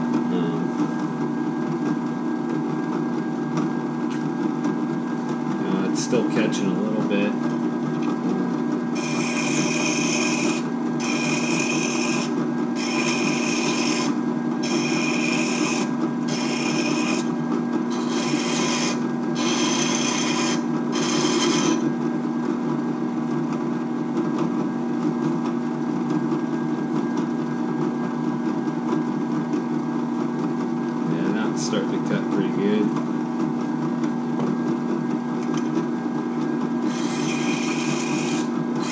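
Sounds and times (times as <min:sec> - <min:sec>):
drill press running: 0:05.7 - 0:22.0, 0:35.4 - 0:38.9.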